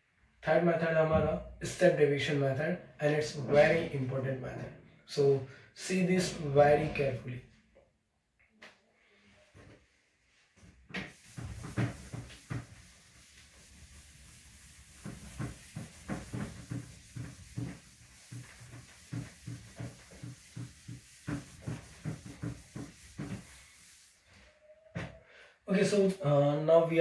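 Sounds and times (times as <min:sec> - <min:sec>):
duster rubbing whiteboard: 0:11.0 - 0:25.1.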